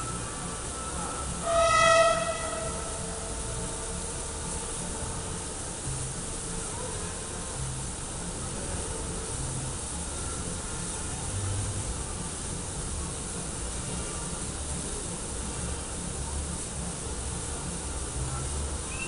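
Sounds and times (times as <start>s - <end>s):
low rumble: 0.0s - 6.7s
steam locomotive hissing: 0.0s - 19.0s.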